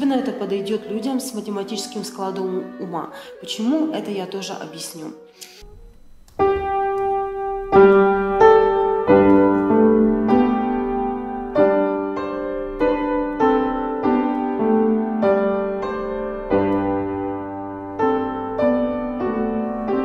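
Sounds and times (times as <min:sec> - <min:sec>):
slow polyphonic piano piece: 0:05.6 - 0:20.0.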